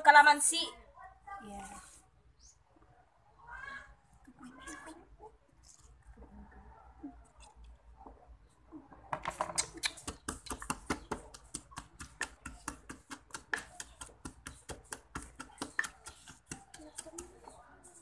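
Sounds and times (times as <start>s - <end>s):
pestle pounding in wooden mortar: 9.3s - 17.4s.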